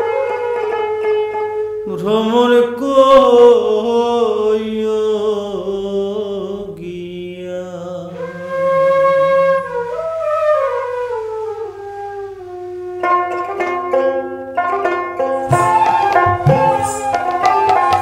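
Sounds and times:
flute melody: 0.0s - 1.8s, 8.2s - 18.0s.

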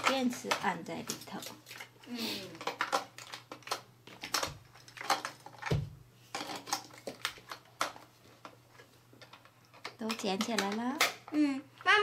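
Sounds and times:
small plastic clicks and clatters: 2.6s - 11.4s.

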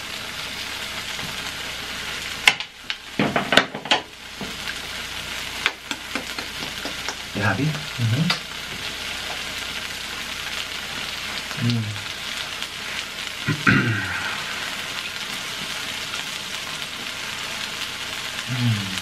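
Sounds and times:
cheese and chips sizzling on griddle: 0.0s - 19.0s
person humming mm: 11.6s - 12.0s, 13.5s - 14.6s, 18.5s - 19.0s.

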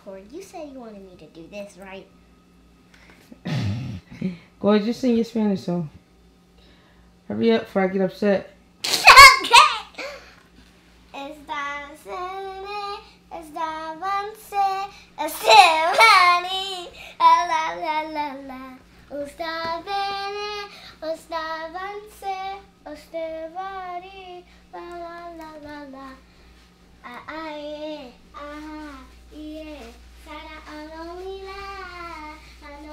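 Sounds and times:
girl singing unaccompanied: 11.1s - 26.3s, 27.0s - 32.9s.

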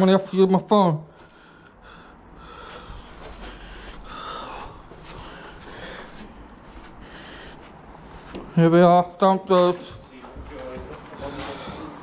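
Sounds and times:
person breathing: 1.1s - 8.5s, 10.3s - 12.0s.

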